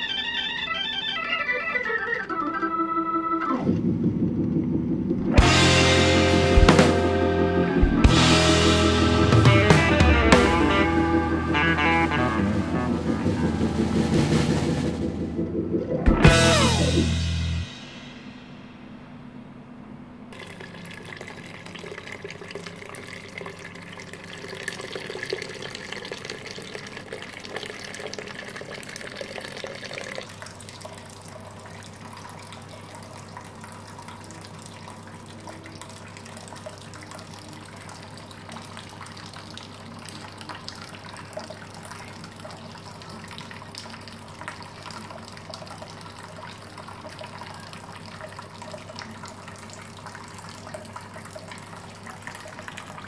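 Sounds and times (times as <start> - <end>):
liquid pouring into steel kettle: 20.4 - 37.3.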